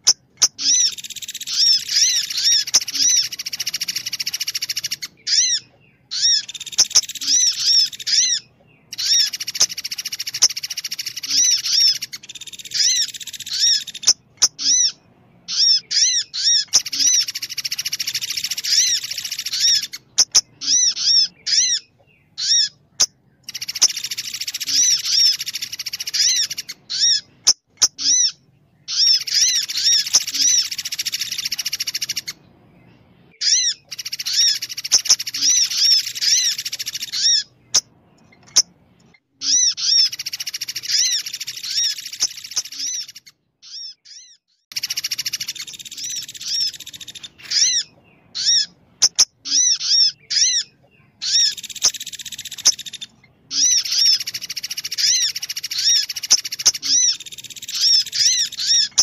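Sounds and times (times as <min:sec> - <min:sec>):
high bird twittering: 0:00.0 - 0:59.0.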